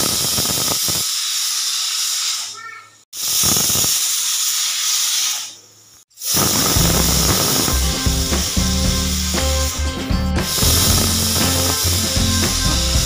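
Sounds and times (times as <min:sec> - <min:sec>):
pressure cooker hissing: 0:00.0 - 0:13.0
music beat: 0:06.4 - 0:13.0.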